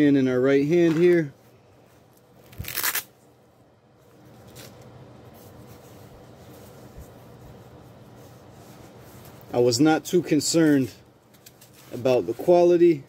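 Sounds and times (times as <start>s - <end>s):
fabric rubbing and rustling: 0.8s - 3.1s, 4.0s - 12.8s.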